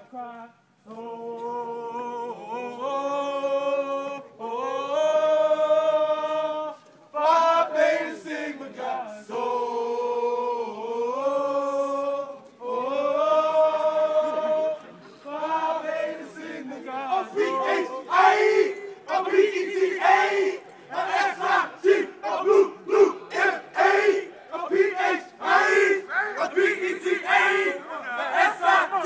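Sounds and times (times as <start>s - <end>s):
men singing a hymn: 0.9s - 29.0s.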